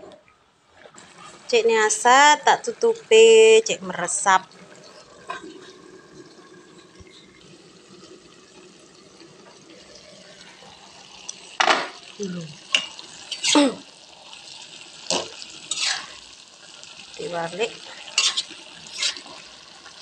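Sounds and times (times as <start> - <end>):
stew simmering: 0.0 - 20.0
metal spoon scraping a pan: 12.7 - 13.7, 15.1 - 16.2, 17.9 - 19.6.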